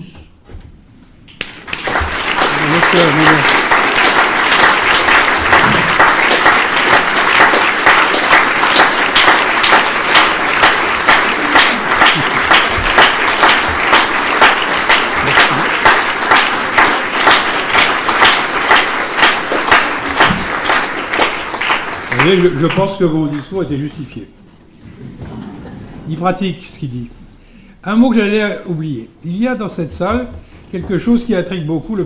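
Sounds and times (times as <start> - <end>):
audience applauding: 1.3 - 23.6.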